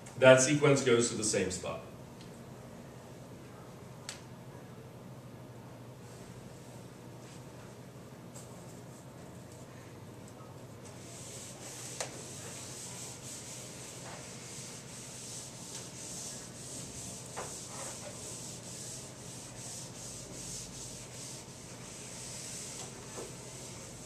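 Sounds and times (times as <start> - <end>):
eraser wiping a whiteboard: 10.9 - 24.0.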